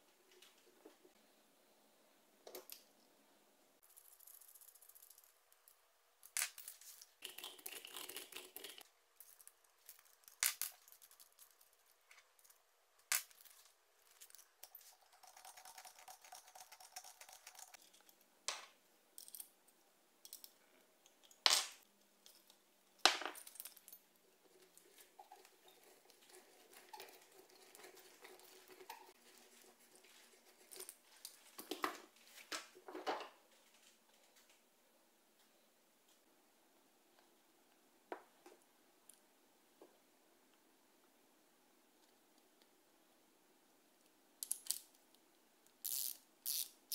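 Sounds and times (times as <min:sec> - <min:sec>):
small metal parts clicking: 0:03.8 - 0:07.1, 0:07.8 - 0:18.2, 0:20.2 - 0:21.4, 0:44.4 - 0:45.0, 0:45.8 - 0:46.7.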